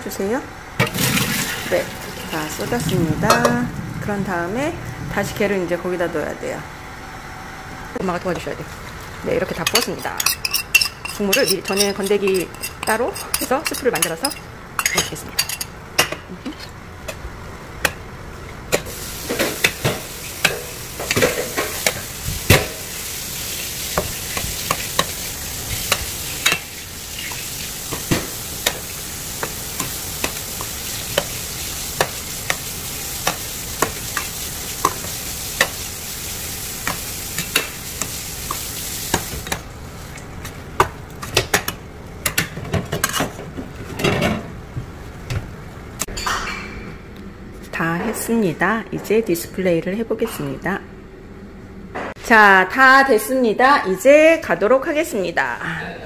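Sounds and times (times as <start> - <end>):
utensil scraping pan: 9.6 - 14.4
noodles sizzling in pan: 18.8 - 40.3.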